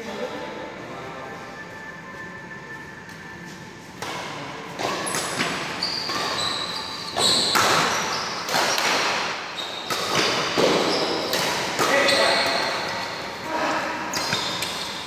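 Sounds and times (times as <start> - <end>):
racket striking shuttlecock: 4.0 - 13.0
shoe squeaks on court floor: 4.8 - 8.8, 9.5 - 11.3, 11.9 - 12.7, 14.1 - 15.0.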